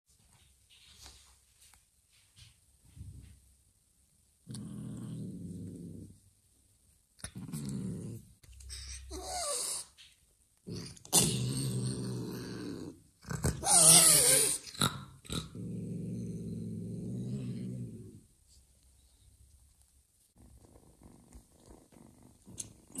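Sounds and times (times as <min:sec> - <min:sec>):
cat growling: 0:04.5 - 0:06.2, 0:07.2 - 0:09.9, 0:10.6 - 0:18.2, 0:20.4 - 0:23.0
cat hissing and yowling: 0:08.7 - 0:09.9, 0:13.5 - 0:14.8.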